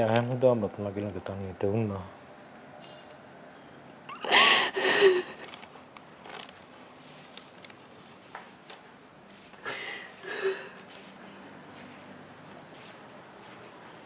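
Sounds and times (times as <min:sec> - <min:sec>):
woman sobbing or gasping: 0:04.1 - 0:05.6, 0:09.6 - 0:10.8.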